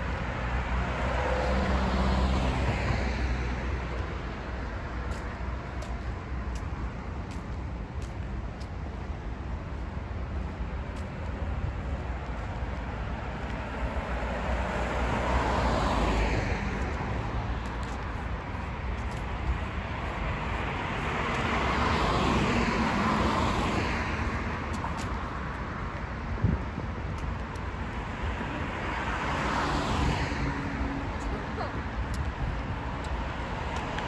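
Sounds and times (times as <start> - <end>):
vehicles passing by: 0.0 - 34.0.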